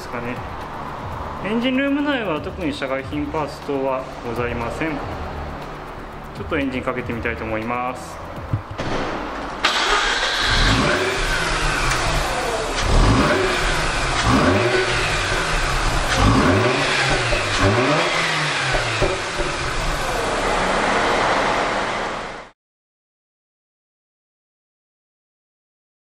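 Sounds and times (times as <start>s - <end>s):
rotary engine revving: 9.7s - 22.5s.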